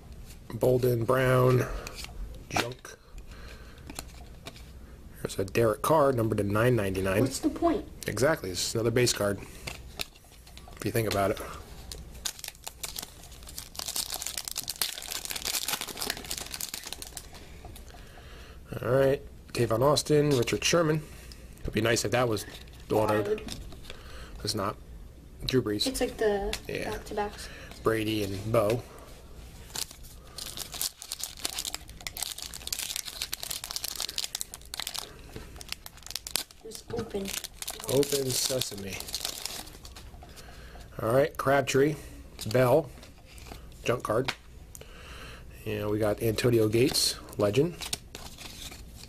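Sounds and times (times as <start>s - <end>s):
plastic wrapper crinkling and tearing: 9.7s - 17.9s, 29.6s - 40.1s, 46.6s - 49.0s.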